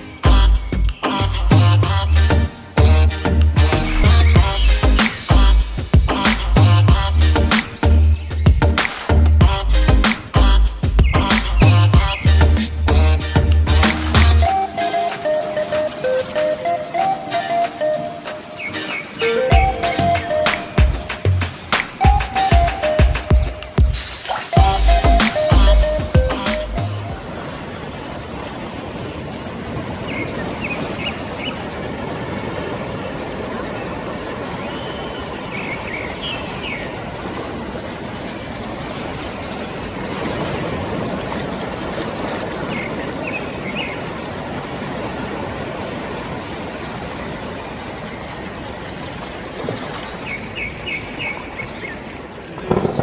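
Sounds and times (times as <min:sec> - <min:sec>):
even rushing outdoor noise: 0:00.0 - 0:53.0
small birds chirping: 0:10.9 - 0:12.4.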